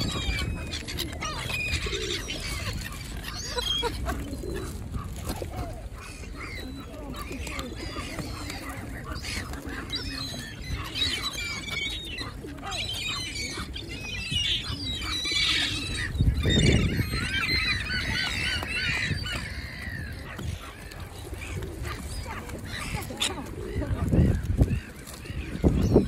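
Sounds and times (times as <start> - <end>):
waterbirds honking and squawking: 0.0 - 26.0.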